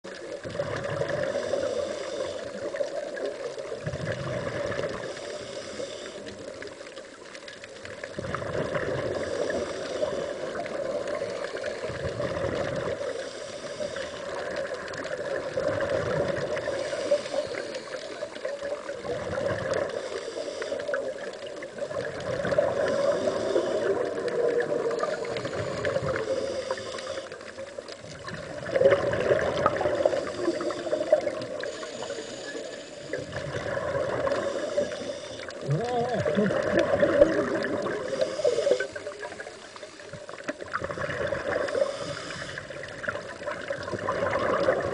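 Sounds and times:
steady underwater hum: 0.0s - 44.9s
regulator inhale hiss: 0.1s - 3.8s, 4.7s - 7.1s, 8.8s - 15.6s, 16.4s - 19.0s, 19.6s - 21.9s, 22.5s - 27.9s, 29.4s - 35.6s, 37.6s - 40.6s, 41.2s - 43.6s
exhaust bubbles rushing: 28.2s - 30.0s, 35.6s - 38.0s, 43.0s - 44.9s.

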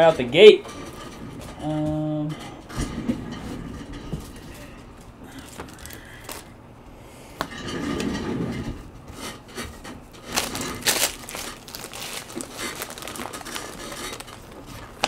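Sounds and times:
packaging rustling and crinkling: 5.4s - 6.5s, 10.2s - 15.0s.

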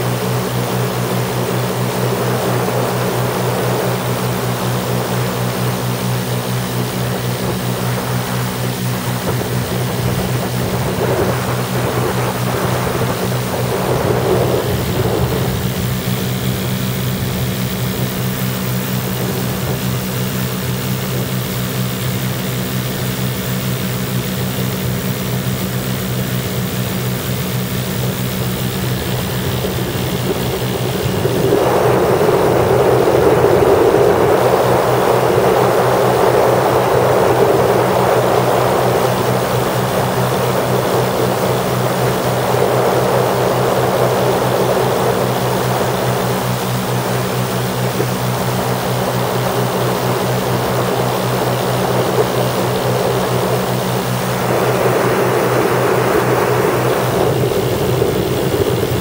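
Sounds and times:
aircraft engines droning: 0.0s - 59.0s
wind rushing: 9.0s - 18.1s, 28.6s - 46.4s, 51.8s - 59.0s.

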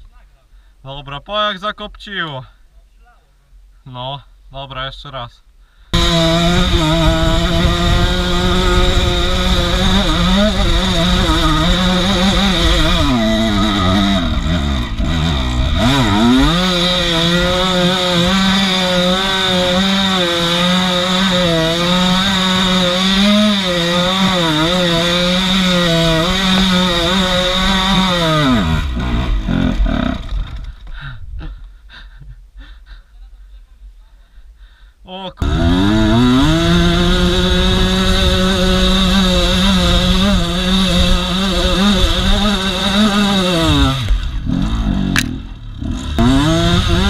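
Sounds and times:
motorcycle engine revving: 6.0s - 30.6s, 35.4s - 47.0s.

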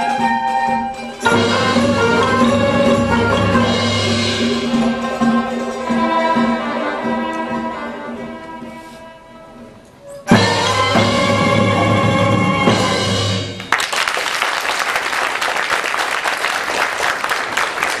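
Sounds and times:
audience applause: 13.6s - 18.0s.

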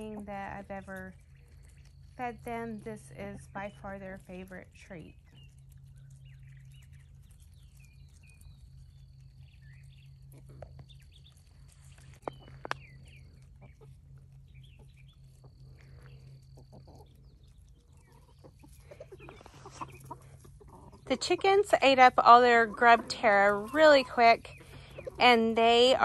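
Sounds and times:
steady low hum: 0.0s - 26.0s
chickens clucking: 12.0s - 26.0s.

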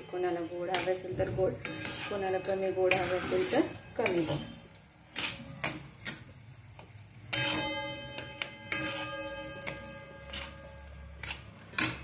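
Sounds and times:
metal spatula scraping brass pan: 0.0s - 5.9s, 8.7s - 12.0s.

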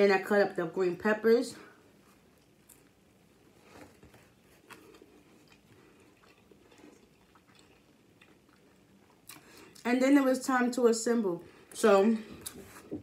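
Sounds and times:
faint chewing: 2.2s - 3.0s, 3.6s - 9.9s.

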